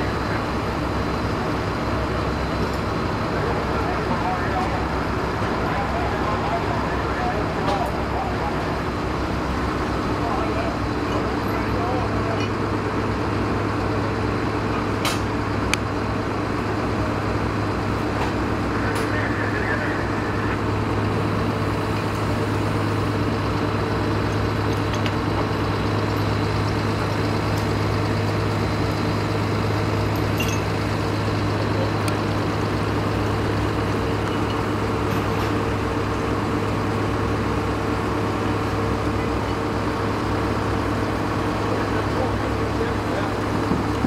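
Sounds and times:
diesel engine droning: 0:00.0 - 0:44.0.

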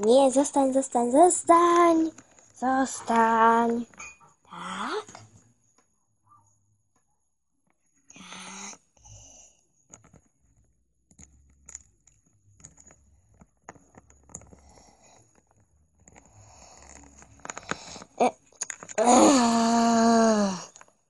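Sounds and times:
plastic toy handling rustle: 0:00.0 - 0:03.9, 0:11.6 - 0:19.0.

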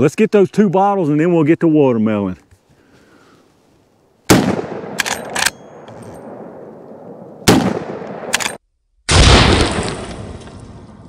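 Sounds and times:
rifle shots with rolling echo: 0:04.3 - 0:10.9
rifle lever clacks: 0:04.9 - 0:06.4, 0:08.0 - 0:08.6.

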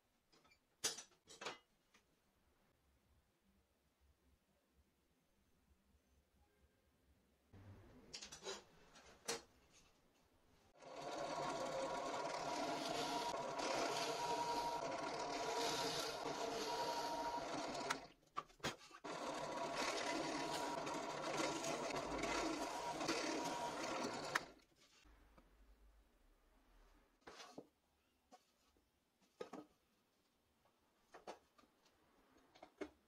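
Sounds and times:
drill press motor whining: 0:10.8 - 0:18.1, 0:19.1 - 0:24.6.

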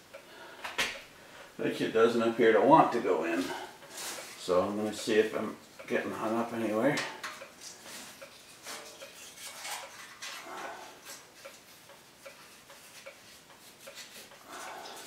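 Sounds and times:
faint regular ticking: 0:03.8 - 0:10.0, 0:11.0 - 0:14.8
stove pipe scraping against metal: 0:07.0 - 0:15.0.

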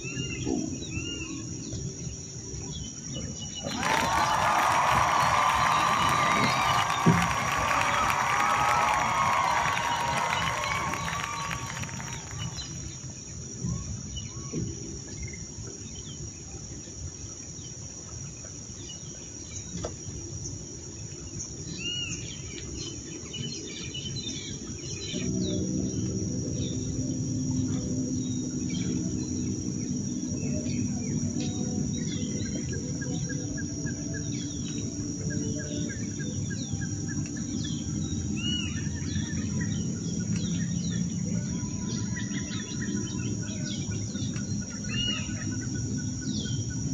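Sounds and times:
insect drone: 0:00.0 - 0:46.9
birds chirping: 0:03.6 - 0:12.9
low steady hum: 0:23.3 - 0:46.9.

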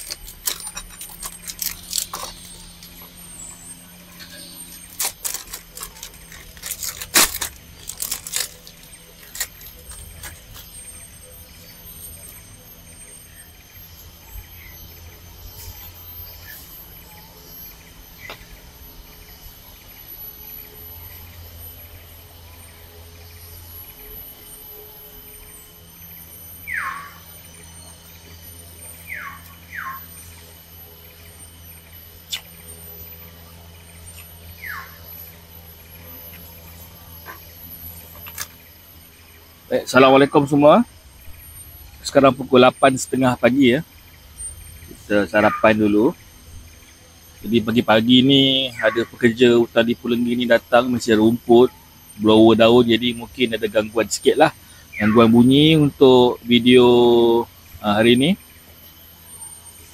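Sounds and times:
sharp clicks and clinks: 0:00.0 - 0:03.1, 0:04.1 - 0:10.7
high-pitched insect trills: 0:00.0 - 0:59.9.

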